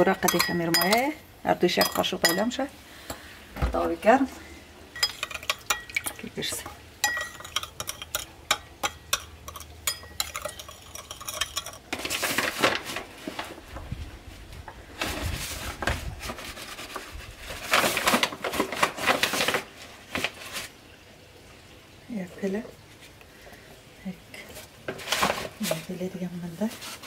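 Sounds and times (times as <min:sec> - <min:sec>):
spoon clinking in ceramic bowl: 0:00.0 - 0:01.1, 0:01.8 - 0:02.6, 0:05.0 - 0:11.8
paper bag rustling: 0:11.9 - 0:20.8, 0:25.0 - 0:27.0.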